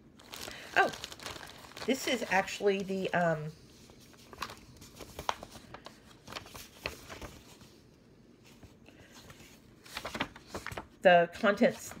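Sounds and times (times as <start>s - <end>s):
paper rustling and crinkling: 0.2s - 12.0s.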